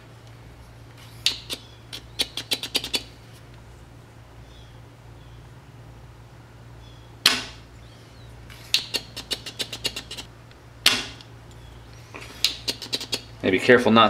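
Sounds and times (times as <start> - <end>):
desoldering pump snapping: 0.2 - 3.1, 8.5 - 13.2.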